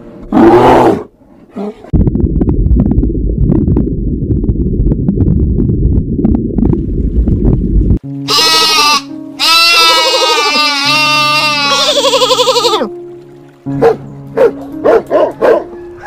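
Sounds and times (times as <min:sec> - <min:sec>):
low underwater rumble: 0:01.9 - 0:08.0
sheep bleating: 0:08.2 - 0:12.9.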